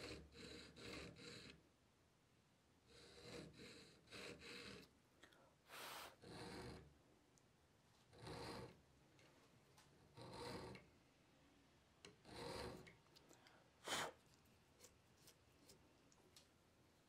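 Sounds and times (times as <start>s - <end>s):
hand file rasping on steel: 0.0s - 1.6s, 2.9s - 4.9s, 10.1s - 10.8s, 12.2s - 12.9s.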